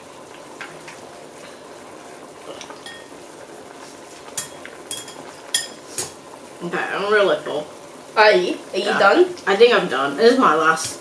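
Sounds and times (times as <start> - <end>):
broth bubbling in a pot: 0.0 - 11.0
chopsticks and bowls clinking: 2.8 - 3.1, 4.4 - 5.8.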